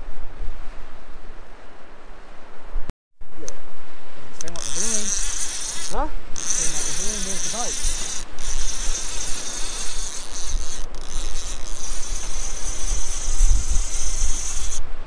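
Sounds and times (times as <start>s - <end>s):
wind rumbling on microphone: 0.0s - 15.0s
insects buzzing: 4.2s - 15.0s.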